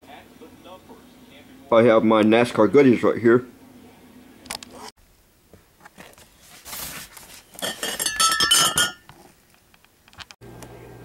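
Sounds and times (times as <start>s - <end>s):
cardboard rustling: 5.6s - 7.6s
glass bottles clinking: 7.6s - 9.1s.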